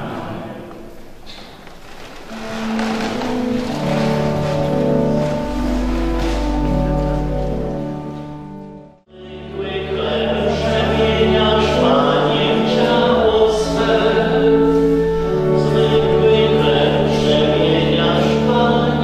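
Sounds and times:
choir singing a hymn: 0.0 - 0.8, 9.1 - 19.0
low organ notes: 0.0 - 19.0.

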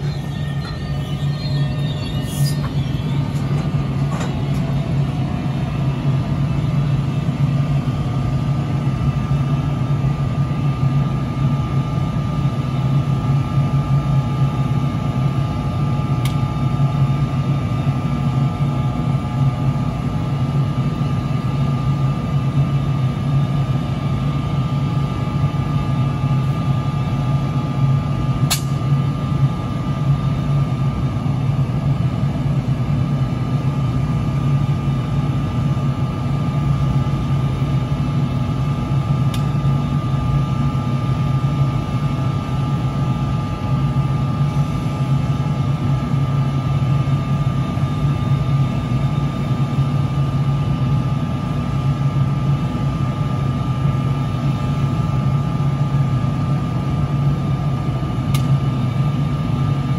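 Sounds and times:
electric locomotive humming: 0.0 - 59.9
sharp click: 28.5 - 28.8, 58.3 - 58.5.

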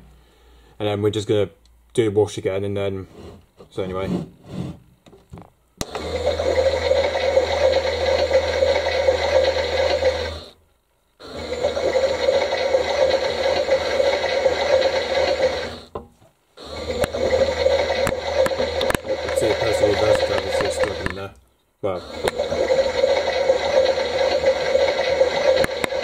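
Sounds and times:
toy motor whirring: 16.8 - 21.2, 22.1 - 26.0.

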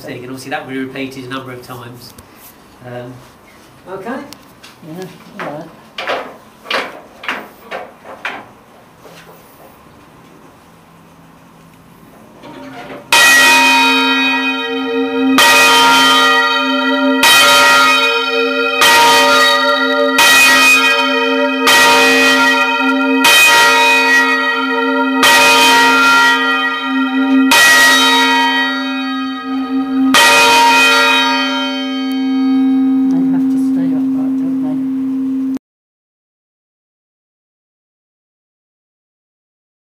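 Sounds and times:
church bells ringing: 12.5 - 35.4.

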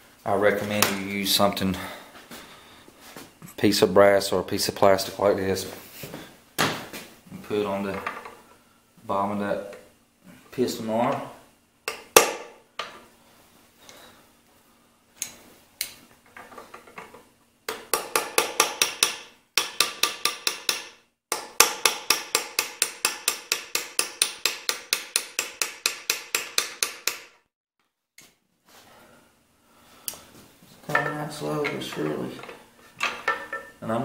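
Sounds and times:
hammer tapping on metal drift: 17.7 - 27.4.

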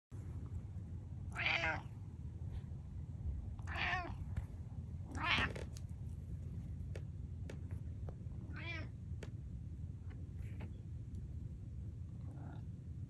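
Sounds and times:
cat meowing: 1.3 - 1.9, 3.6 - 4.2, 5.1 - 5.6, 8.5 - 8.9.

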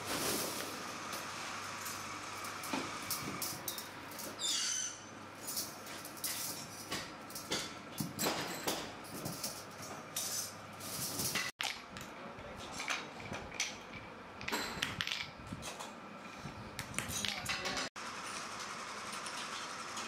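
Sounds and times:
steel springs clinking and rattling: 5.4 - 11.5.

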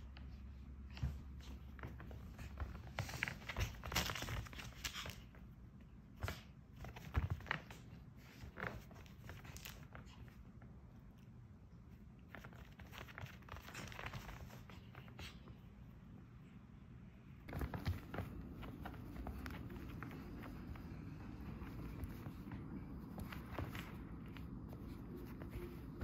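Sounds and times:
dogs scuffling at play: 0.1 - 5.5, 6.2 - 10.4, 12.2 - 15.6, 17.5 - 26.0.

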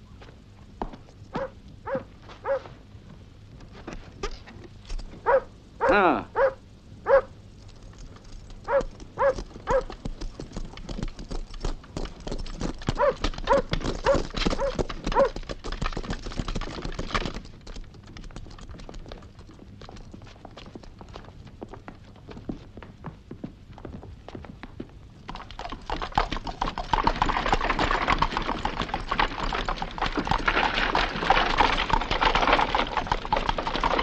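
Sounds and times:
horses' hooves clip-clopping: 0.0 - 5.4, 7.1 - 34.0
dog barking: 1.4 - 2.7, 5.2 - 7.3, 8.7 - 9.9, 13.0 - 15.4.

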